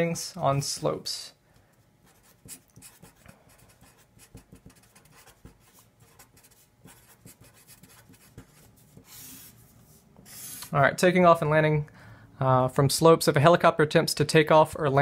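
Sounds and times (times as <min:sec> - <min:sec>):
marker scratching on paper: 0:02.0 - 0:10.7.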